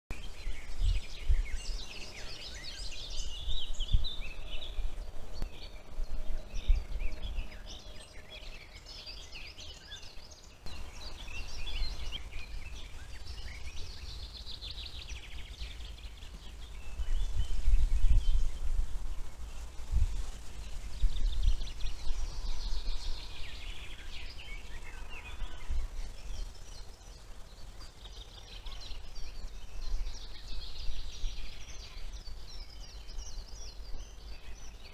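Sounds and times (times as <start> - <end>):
songbirds singing: 0.1 - 34.9.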